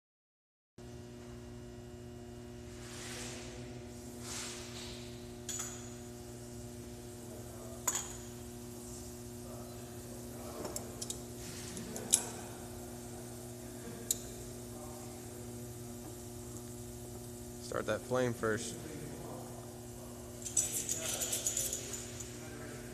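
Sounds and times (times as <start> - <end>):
electrical hum: 0.8 - 22.9
gas torch hissing: 2.5 - 22.9
sharp clicks and clinks: 10.6 - 11.2, 20.4 - 22.4.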